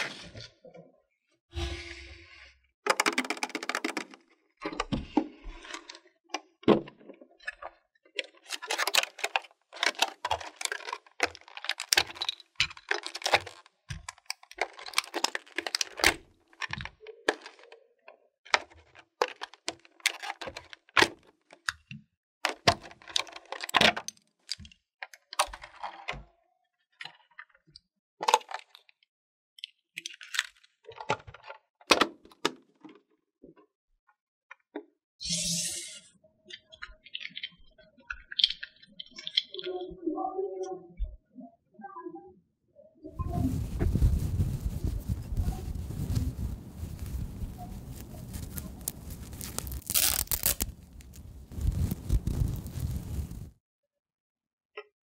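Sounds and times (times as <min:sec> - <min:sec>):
plastic case clicks and crackles: 0:08.4 - 0:17.7.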